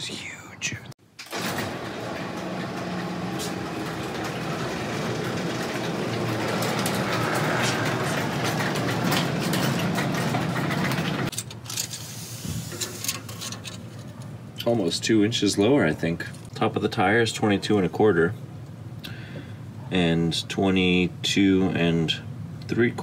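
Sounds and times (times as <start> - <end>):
garage door opening: 1.2 - 13.8.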